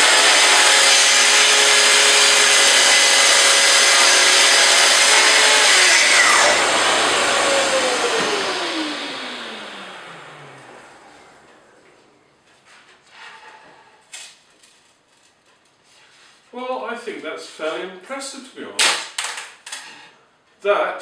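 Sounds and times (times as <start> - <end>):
circular saw cutting board: 0.0 - 11.8
saw blade winding down whine: 0.0 - 11.8.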